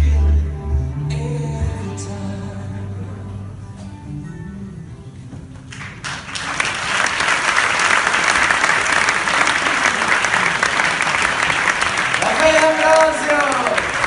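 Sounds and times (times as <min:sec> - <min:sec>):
audience applause: 0:05.7 - 0:14.0.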